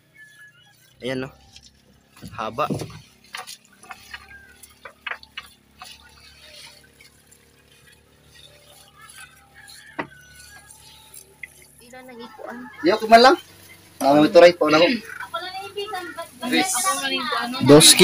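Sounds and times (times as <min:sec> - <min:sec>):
net knocking against hull: 0:02.1 - 0:06.0.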